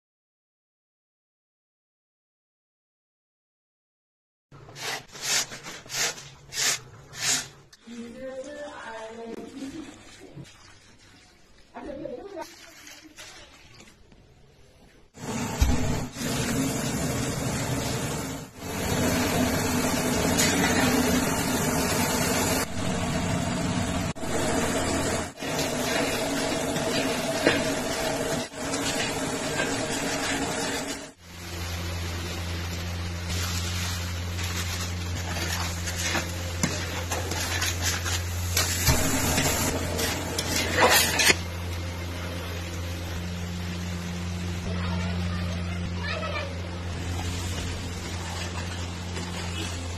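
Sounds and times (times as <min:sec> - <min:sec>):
steady mechanical roar: 0:15.2 - 0:37.4
metal spatula scraping a pan: 0:33.3 - 0:41.5.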